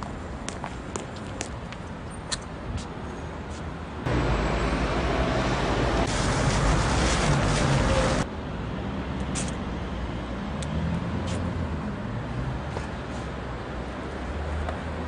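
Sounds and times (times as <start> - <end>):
road traffic hiss: 0.0 - 15.0.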